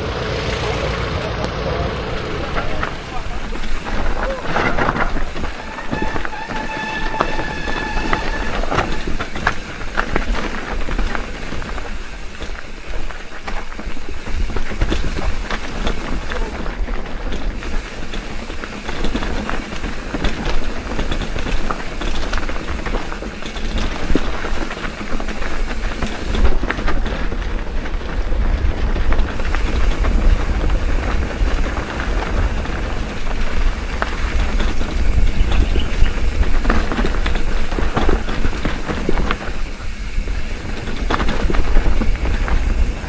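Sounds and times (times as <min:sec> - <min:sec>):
bike rattling over rough trail: 0:00.0 - 0:43.0
wind buffeting microphone: 0:01.8 - 0:43.0.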